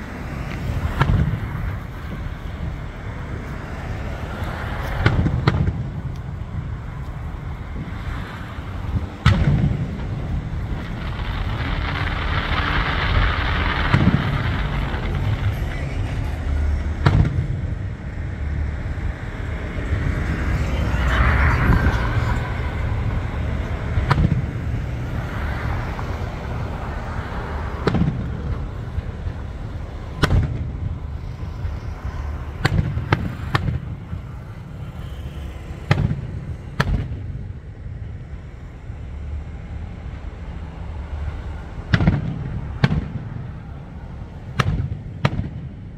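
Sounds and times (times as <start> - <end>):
steady rush of noise: 0.0 - 45.9
firework shells bursting: 9.2 - 17.6.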